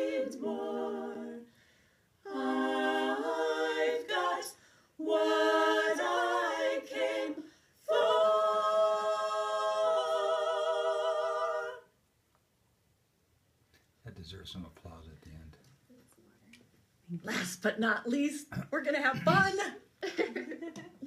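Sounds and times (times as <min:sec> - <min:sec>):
a cappella group singing: 0:00.0 - 0:12.0.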